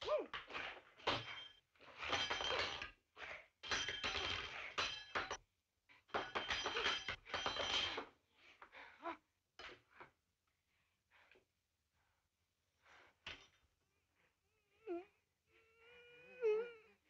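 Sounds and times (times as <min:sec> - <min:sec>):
dishes and silverware clattering: 0:00.6 - 0:02.9, 0:03.6 - 0:05.4, 0:06.1 - 0:08.1.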